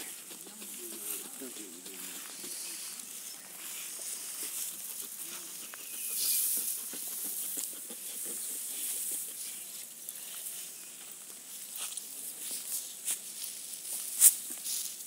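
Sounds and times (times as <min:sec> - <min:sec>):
dry straw rustling: 0:00.0 - 0:15.0.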